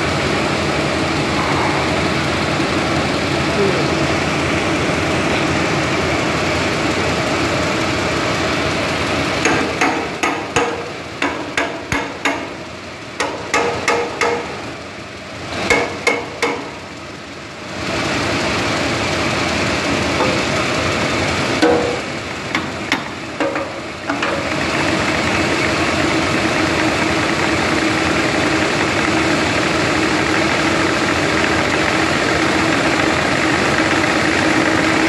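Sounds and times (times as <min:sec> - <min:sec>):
machine whirring: 0:01.2 - 0:05.8
sharp knocks: 0:09.4 - 0:12.5, 0:13.2 - 0:14.6, 0:21.6 - 0:24.4.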